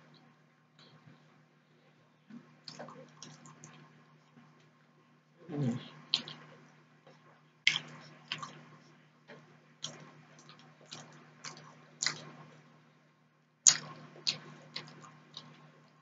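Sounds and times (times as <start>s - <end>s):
low machine hum: 0.0s - 16.0s
person chewing food: 2.6s - 4.0s, 5.6s - 12.6s, 13.6s - 15.9s.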